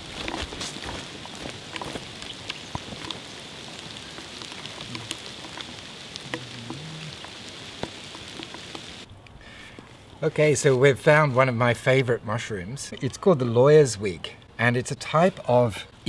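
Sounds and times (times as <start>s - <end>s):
footsteps on leaves: 0.0s - 9.0s
rain pattering on leaf litter: 0.0s - 9.1s.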